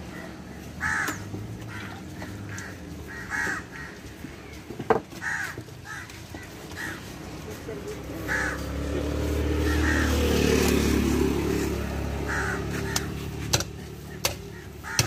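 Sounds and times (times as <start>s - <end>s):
crows cawing: 0.0s - 7.3s, 8.2s - 15.0s.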